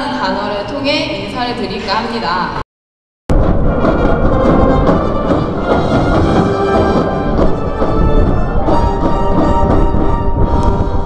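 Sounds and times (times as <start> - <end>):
percussion strokes: 3.3 - 11.0
orchestra playing loud music: 3.4 - 11.0.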